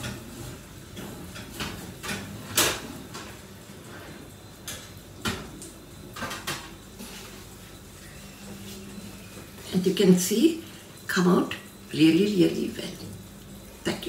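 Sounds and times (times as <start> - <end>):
baking dishes clanking on oven rack: 0.0 - 3.4.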